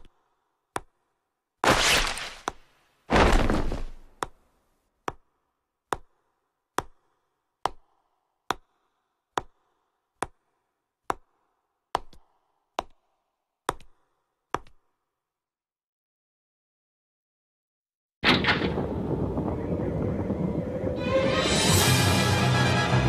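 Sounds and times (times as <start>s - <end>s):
hard footsteps: 1.6s - 4.4s.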